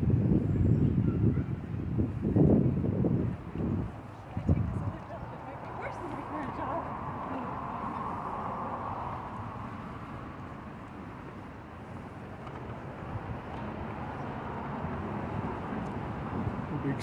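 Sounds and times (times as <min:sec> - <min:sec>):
city traffic rumble: 0:00.0 - 0:17.0.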